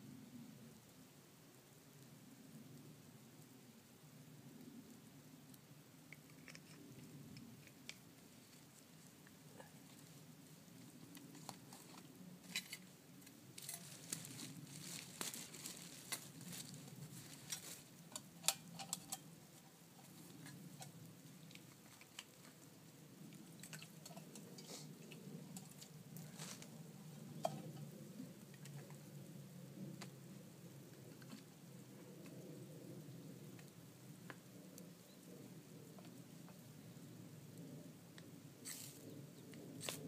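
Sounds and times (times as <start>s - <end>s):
small metal clicks and knocks: 6.1s - 8.6s, 17.5s - 22.6s, 23.4s - 25.9s
plastic bags crinkling: 13.6s - 17.9s.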